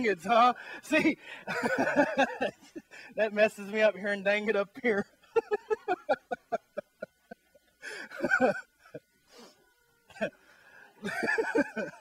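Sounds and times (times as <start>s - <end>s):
man laughing: 0.9s - 3.1s, 5.0s - 9.1s, 11.0s - 12.0s.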